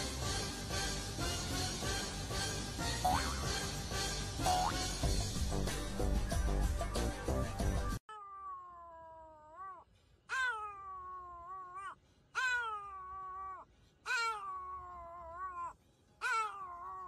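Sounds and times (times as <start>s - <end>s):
music: 0.0s - 8.0s
dog howling: 8.2s - 17.0s.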